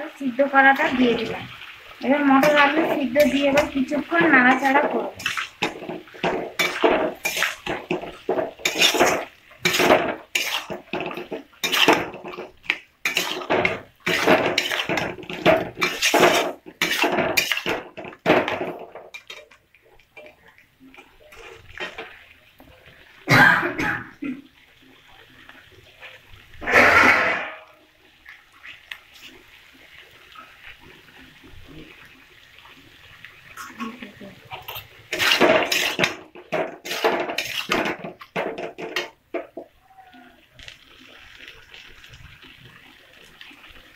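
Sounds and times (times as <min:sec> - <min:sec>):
metal spatula scraping a wok: 0:02.4 - 0:19.5, 0:26.6 - 0:27.7, 0:34.7 - 0:39.1.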